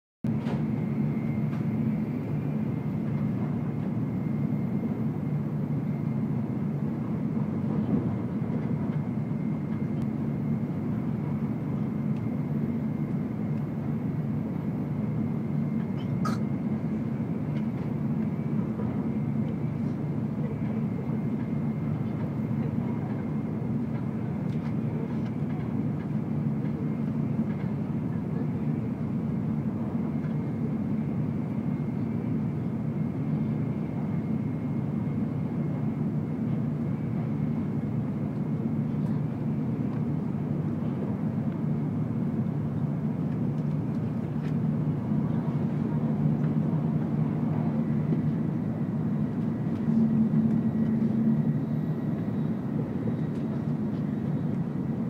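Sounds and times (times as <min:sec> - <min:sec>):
train low rumble: 0:00.2 - 0:55.0.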